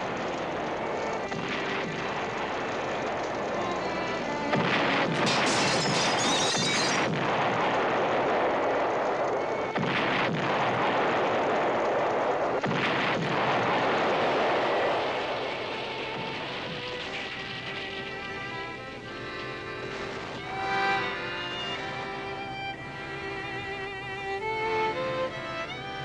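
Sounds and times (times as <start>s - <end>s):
orchestral music score: 0.0s - 7.1s, 16.1s - 26.0s
explosions: 0.0s - 22.6s
gunshots: 0.0s - 22.8s
continuous battle noise: 0.0s - 26.0s.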